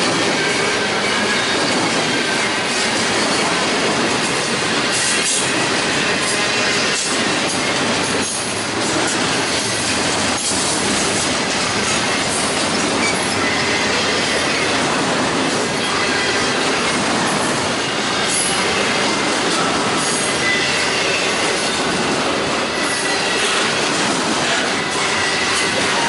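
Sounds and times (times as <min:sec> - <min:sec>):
freight train rolling past: 0:00.0 - 0:26.0.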